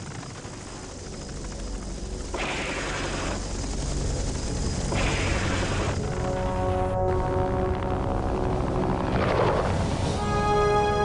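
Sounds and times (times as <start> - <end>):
helicopter rotor and engine drone: 0.0 - 11.0
bursts of weapon fire: 2.3 - 3.4, 4.9 - 6.1.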